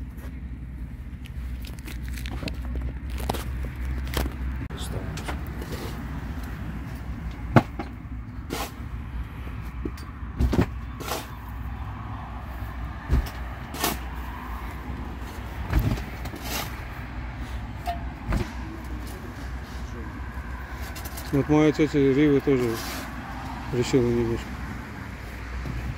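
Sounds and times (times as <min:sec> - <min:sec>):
spade scraping earth: 0:08.4 - 0:08.8, 0:11.0 - 0:11.4, 0:13.1 - 0:14.1, 0:16.2 - 0:16.9.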